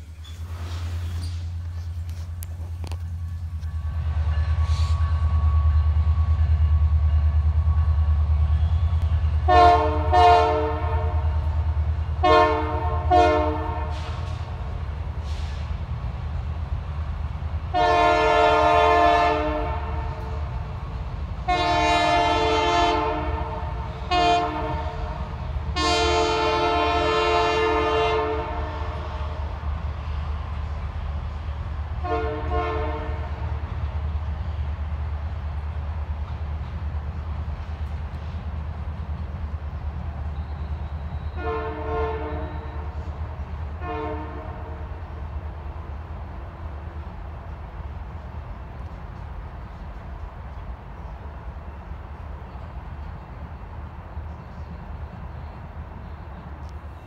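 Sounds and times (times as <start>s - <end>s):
train rumbling past: 0.0s - 57.0s
locomotive air horn blasts: 3.8s - 6.9s, 8.5s - 11.6s, 12.2s - 14.4s, 17.7s - 20.5s, 21.4s - 29.5s, 32.0s - 33.5s, 40.7s - 43.1s, 43.7s - 45.0s.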